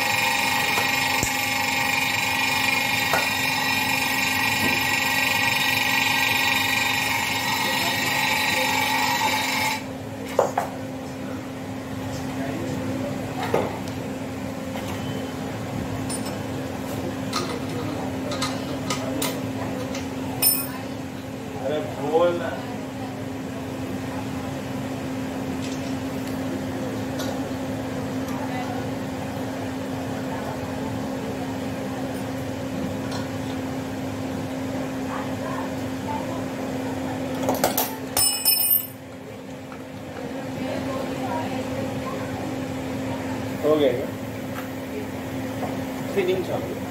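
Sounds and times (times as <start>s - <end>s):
refrigerator compressor humming: 0.0s - 46.9s
metallic clinks and ring from hose: 38.2s - 39.0s.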